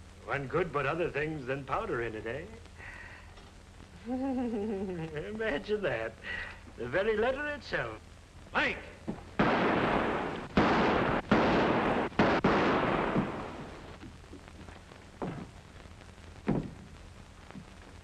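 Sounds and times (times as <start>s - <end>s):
pistol shots echoing: 9.4s - 13.9s.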